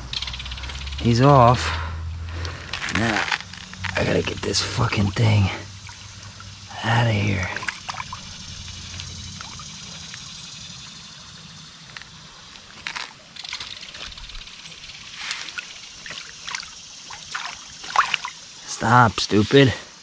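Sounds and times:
stream trickling: 0.0s - 20.0s
short water splashes: 5.2s - 10.2s, 15.0s - 18.9s.

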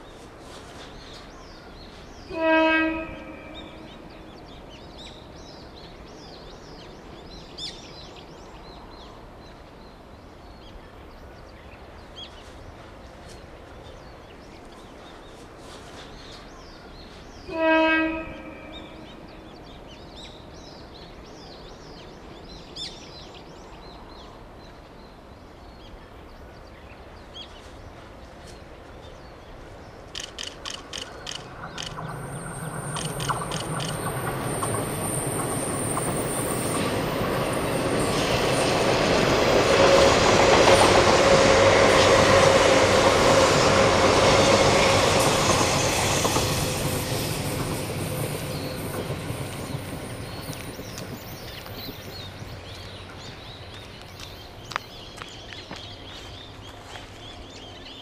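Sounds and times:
train wheels rushing on rail: 0.0s - 9.0s, 11.8s - 20.8s, 27.4s - 58.0s
train whine: 29.5s - 58.0s
train clicks on rail: 30.1s - 38.1s, 44.5s - 56.0s.

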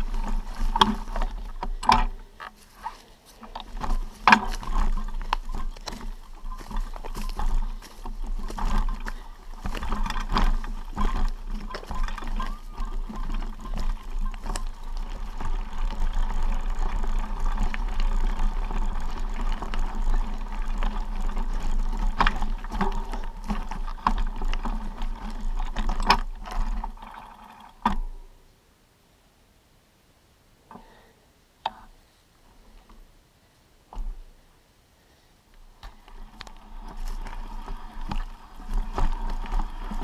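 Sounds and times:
low microphone rumble: 0.0s - 27.0s
footsteps on stony trail: 0.0s - 28.2s, 35.6s - 40.0s.

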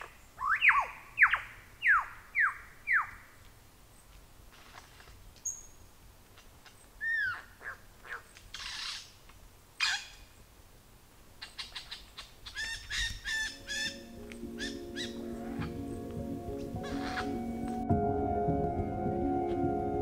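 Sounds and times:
rainforest birds calling: 0.0s - 10.6s, 11.2s - 17.9s
steady low music tones: 13.5s - 20.0s.

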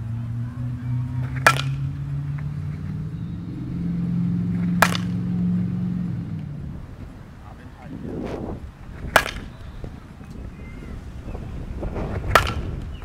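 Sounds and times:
low engine hum: 0.0s - 13.0s
bat hitting ball: 1.0s - 6.5s, 8.1s - 10.5s, 11.2s - 13.0s.

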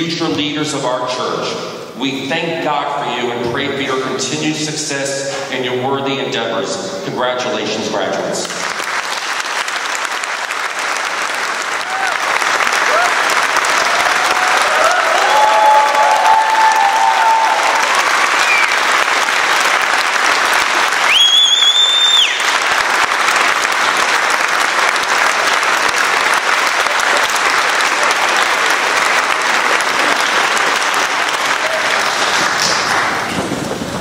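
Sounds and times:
audience applauding: 8.4s - 33.6s
high whistle: 18.3s - 18.8s, 21.0s - 22.6s.

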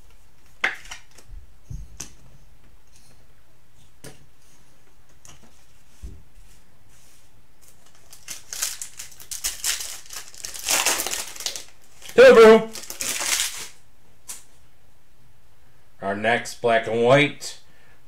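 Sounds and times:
foil pack crinkling: 7.7s - 13.8s.

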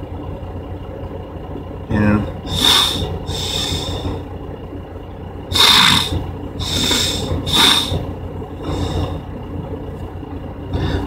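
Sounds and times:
steady low hum: 0.0s - 11.0s
short hissy breaths: 2.5s - 4.2s, 5.5s - 8.0s, 8.6s - 9.2s.

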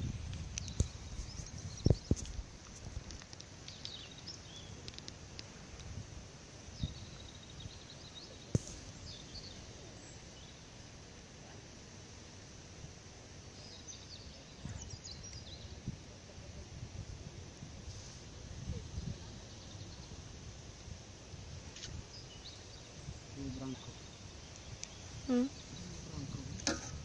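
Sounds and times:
faint bird chirps: 6.7s - 10.8s, 13.5s - 16.6s, 21.7s - 26.6s.

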